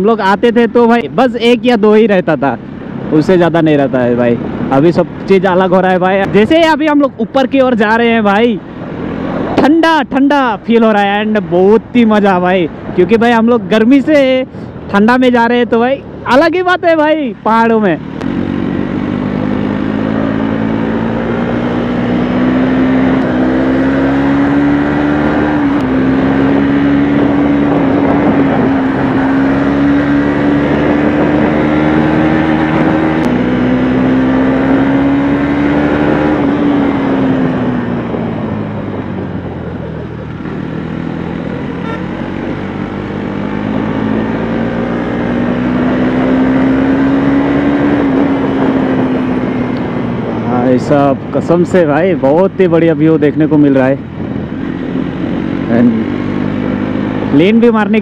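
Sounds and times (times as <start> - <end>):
motorcycle engine running: 17.0 - 58.0
wind rush: 17.8 - 52.6.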